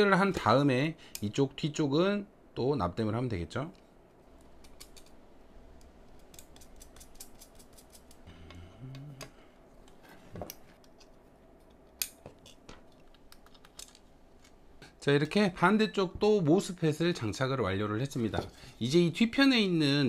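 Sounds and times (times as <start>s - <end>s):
low voice hum: 8.3s - 9.6s.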